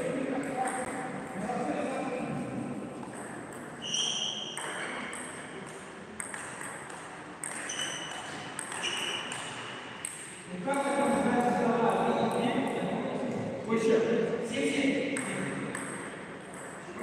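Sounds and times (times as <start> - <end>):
short high-pitched squeaks: 3.8 - 5.0, 7.6 - 9.3
table tennis ball clicking: 4.6 - 10.2.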